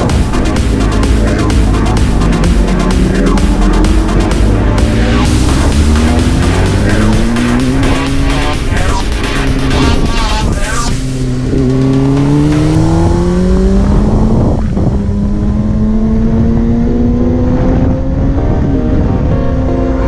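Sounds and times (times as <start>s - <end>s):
motorcycle engine accelerating: 0.0s - 20.0s.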